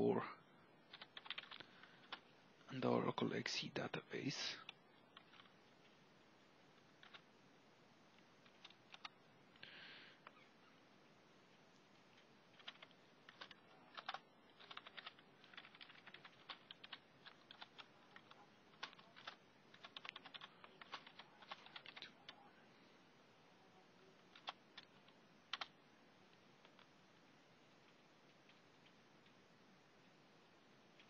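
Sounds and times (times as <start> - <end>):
typing on computer keyboard: 0.9 - 2.2, 4.6 - 5.5, 7.0 - 7.2, 8.4 - 9.2, 12.5 - 22.4, 24.2 - 25.7.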